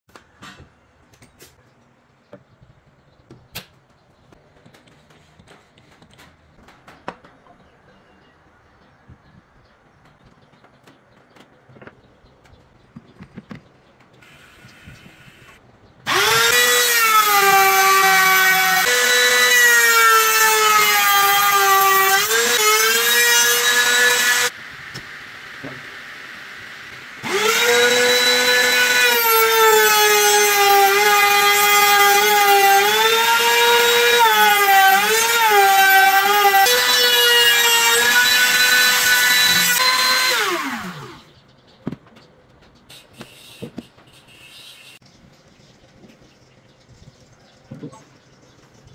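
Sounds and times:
router whining while cutting wood: 16.1s - 24.5s, 27.2s - 41.2s.

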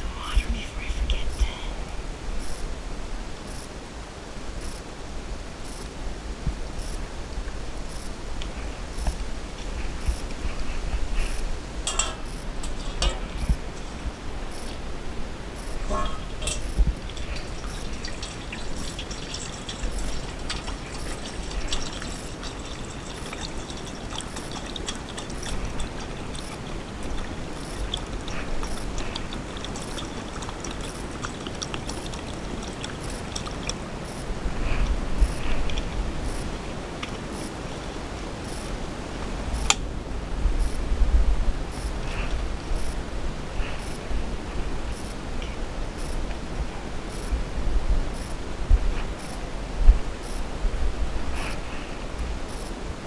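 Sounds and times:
low rumble on microphone: 0.0s - 53.0s
water trickling: 7.3s - 34.3s.

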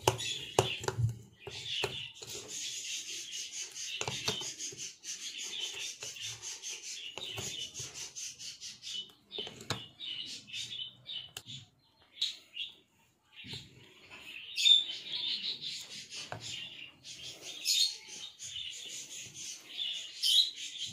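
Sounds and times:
spoon stirring batter in glass bowl: 0.0s - 11.8s.

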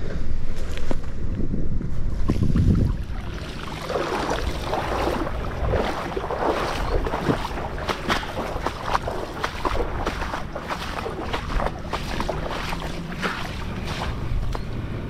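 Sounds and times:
wind rumble on microphone: 0.0s - 15.0s
water splashing and sloshing: 2.1s - 15.0s
small splashes and drips: 2.9s - 14.6s.

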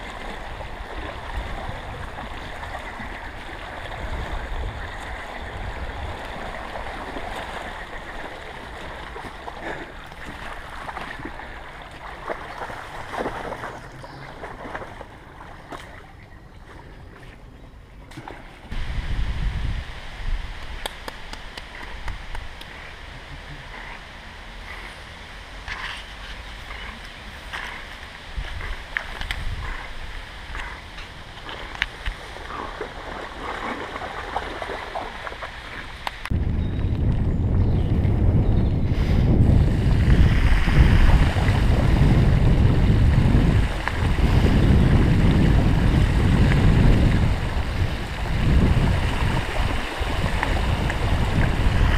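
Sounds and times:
wind buffeting microphone: 0.0s - 15.1s, 18.7s - 23.1s, 25.7s - 35.1s, 35.8s - 51.9s
moving water: 0.0s - 51.9s.

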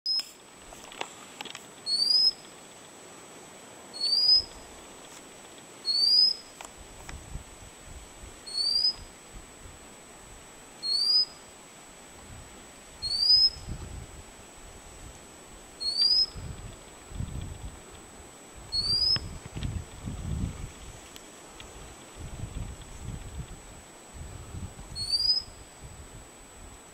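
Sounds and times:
bird rising whistle call: 1.9s - 2.4s, 4.0s - 4.5s, 5.9s - 6.4s, 8.5s - 9.1s, 10.8s - 11.4s, 13.0s - 13.7s, 15.8s - 16.4s, 18.7s - 19.3s, 25.0s - 25.6s.

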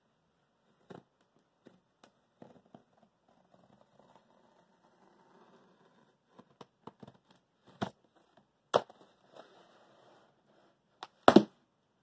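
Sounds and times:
box thumps: 11.1s - 11.6s
taps and knocks on cardboard: 11.2s - 11.5s.

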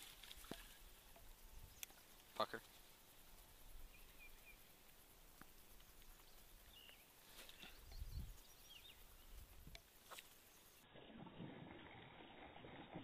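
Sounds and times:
faint bird chirps: 0.6s - 10.9s.

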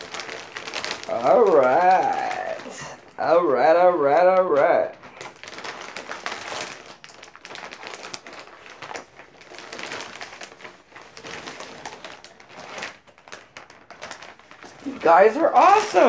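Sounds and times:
plastic bag rustling and crinkling: 0.0s - 16.0s.

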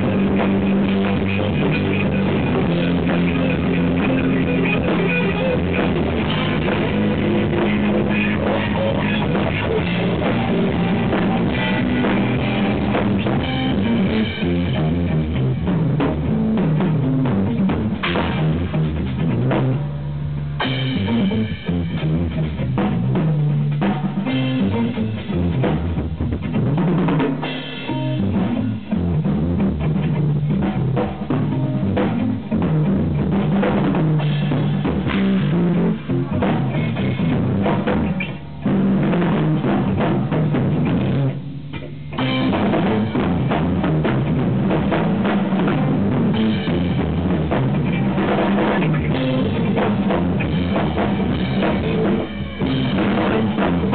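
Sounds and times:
busy drum kit: 0.0s - 53.9s
jazz-rock band playing: 0.0s - 53.9s.

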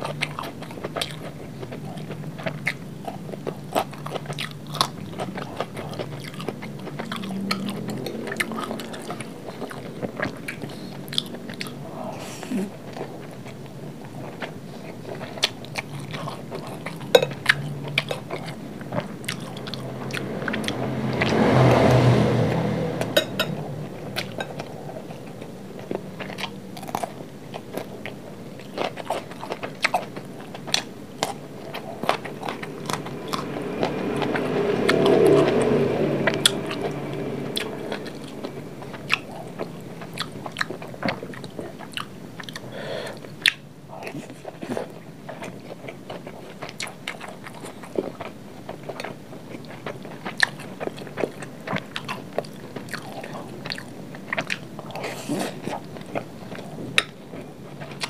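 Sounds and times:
chewing crunchy food: 0.0s - 58.0s
background noise swell: 29.9s - 41.6s.

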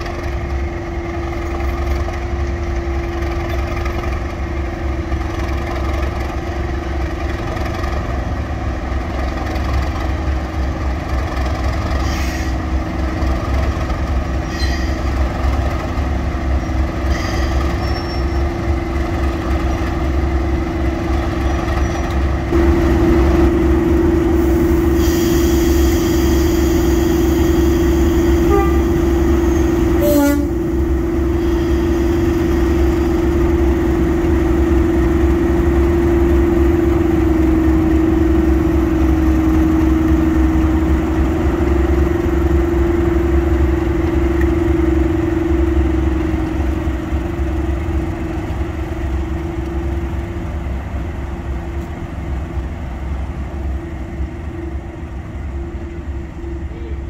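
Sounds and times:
diesel locomotive engines droning: 0.0s - 57.0s.

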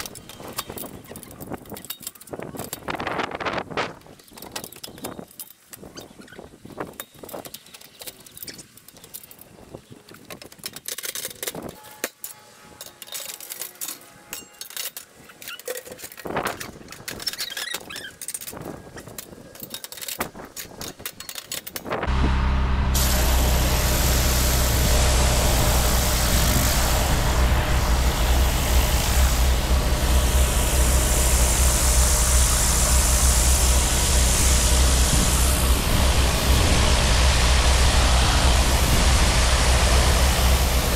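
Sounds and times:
steam cleaning machine hissing: 22.1s - 40.9s.

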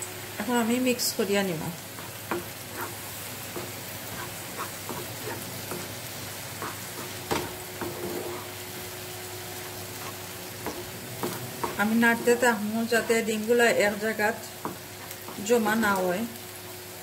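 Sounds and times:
food sizzling: 0.0s - 17.0s
wooden spatula scraping a pan: 1.9s - 8.9s, 9.5s - 13.3s, 14.6s - 15.8s.

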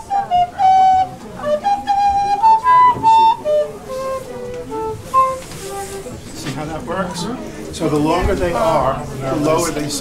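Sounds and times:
low recorder melody: 0.0s - 6.4s.

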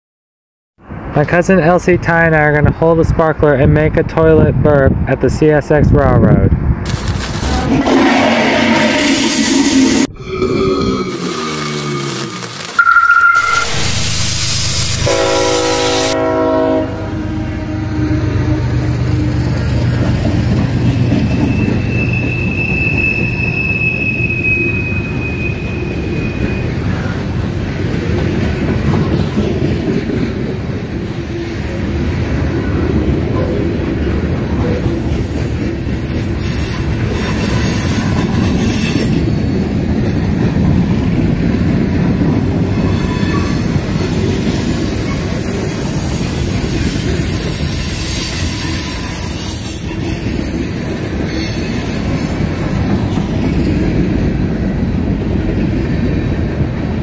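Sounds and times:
train wheels rumbling on rails: 6.2s - 10.1s, 12.5s - 57.0s
high wheel squeal: 12.6s - 16.3s, 21.2s - 27.2s, 42.8s - 43.8s, 46.2s - 52.4s.

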